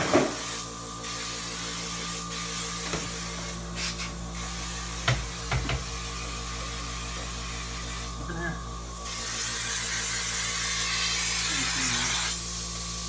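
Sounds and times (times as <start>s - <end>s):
fogger motor hum: 0.0s - 13.0s
mist hissing out: 9.0s - 13.0s.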